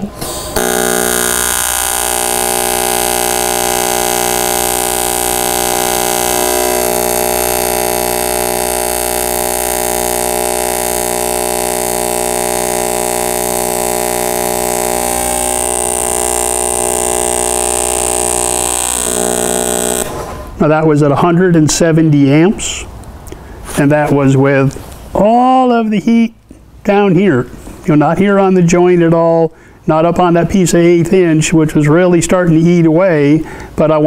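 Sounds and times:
welding arc buzzing: 0.0 - 20.6.

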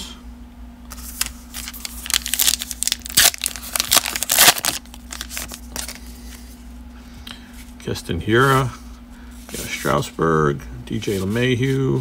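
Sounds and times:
wrapper crinkling and tearing: 0.9 - 6.0.

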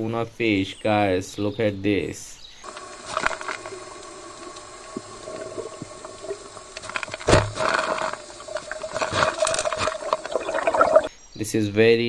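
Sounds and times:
underwater hum: 2.6 - 11.1
rush of water: 2.7 - 11.1.

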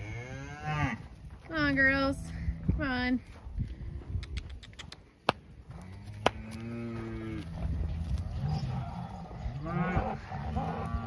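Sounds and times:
cattle mooing: 5.7 - 11.0.

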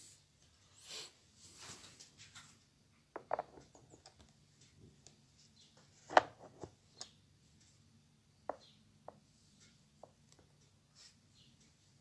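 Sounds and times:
taps and knocks on wooden easel: 3.2 - 4.0.

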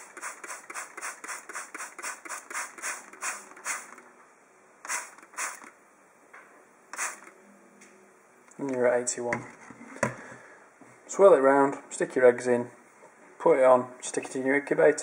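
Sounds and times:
spray bottle squirting: 0.0 - 4.0, 4.8 - 5.7, 6.9 - 7.3.

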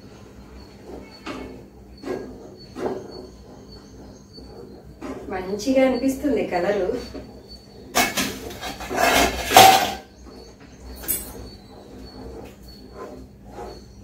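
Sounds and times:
spoon scraping a pan: 6.9 - 10.2
metal pot and utensils clanking: 7.9 - 10.1.

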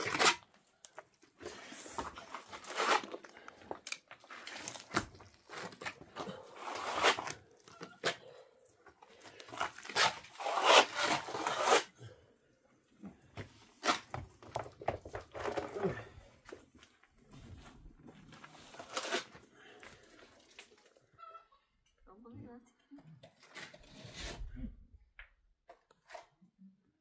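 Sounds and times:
trowel scraping wet plaster: 0.0 - 0.6, 1.4 - 8.4, 9.3 - 12.0, 23.5 - 24.5.

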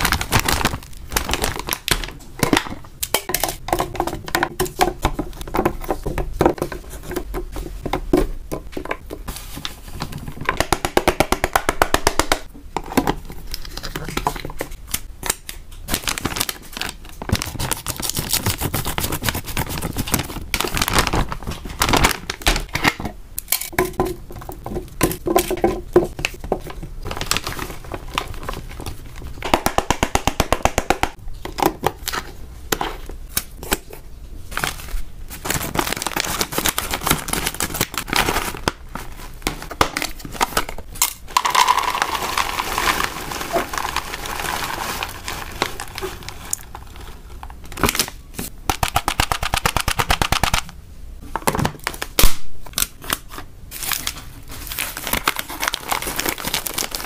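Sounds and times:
plastic crinkling and tearing: 0.0 - 2.7, 13.4 - 22.7, 27.0 - 29.4, 34.5 - 40.7, 41.4 - 48.5, 51.8 - 57.0.

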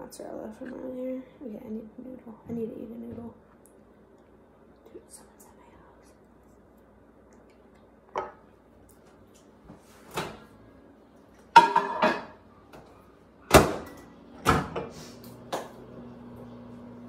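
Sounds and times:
microwave humming: 7.8 - 17.0
microwave door banging shut: 13.5 - 14.8.

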